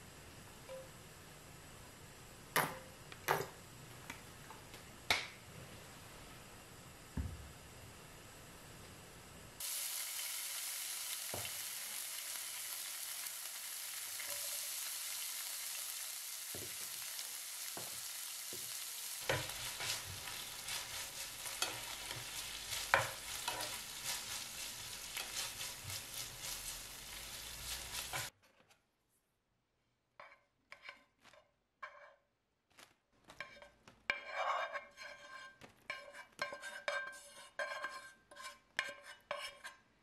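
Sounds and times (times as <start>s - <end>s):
bacon sizzling in frying pan: 9.6s - 28.3s
wooden spatula scraping pan: 19.2s - 28.3s, 30.2s - 32.2s, 33.4s - 39.8s.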